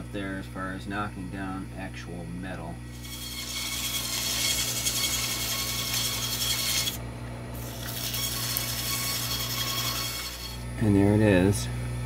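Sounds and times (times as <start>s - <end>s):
lathe humming: 2.8s - 11.6s.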